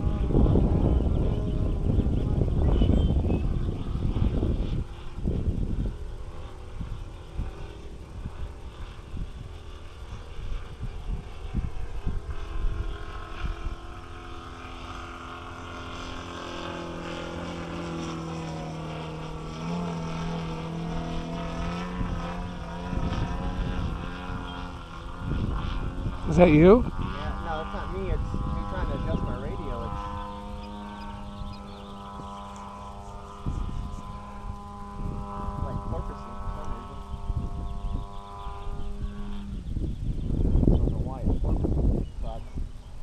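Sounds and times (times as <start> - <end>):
model airplane engine and propeller: 0.0 - 43.0
wind buffeting microphone: 0.0 - 43.0.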